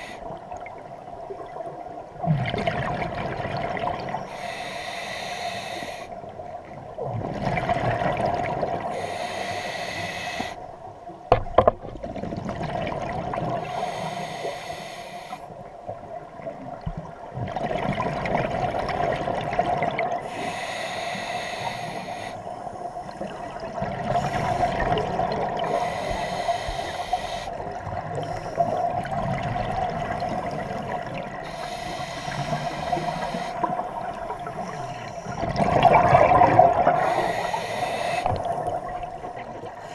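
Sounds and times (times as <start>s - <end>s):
scuba regulator breathing hiss: 0.0s - 0.3s, 4.3s - 6.2s, 8.9s - 10.6s, 13.6s - 15.5s, 20.2s - 23.3s, 24.2s - 25.0s, 25.6s - 28.9s, 31.4s - 35.4s, 36.8s - 38.9s
exhaled bubbles rushing: 2.3s - 4.2s, 7.0s - 8.9s, 12.0s - 13.6s, 17.4s - 20.2s, 35.3s - 37.2s.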